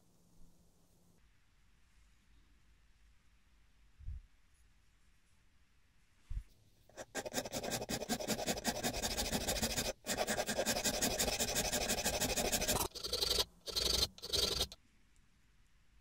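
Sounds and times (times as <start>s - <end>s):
file rasping across wood: 6.9s - 14.8s.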